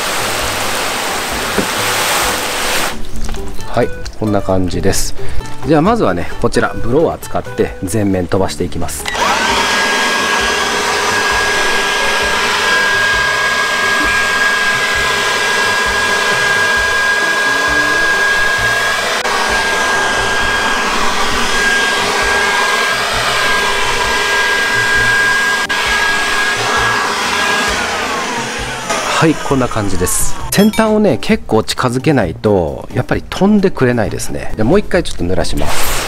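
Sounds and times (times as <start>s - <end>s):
electric blower whining: 0.0s - 3.0s, 9.0s - 30.6s.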